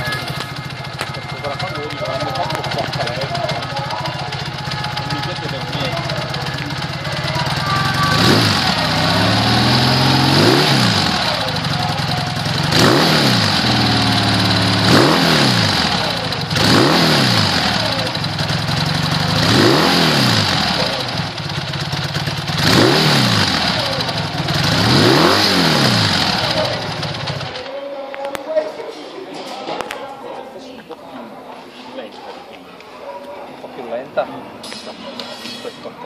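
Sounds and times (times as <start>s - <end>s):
motorcycle engine revving: 0.0s - 27.7s
motorcycle engine idling: 0.0s - 27.8s.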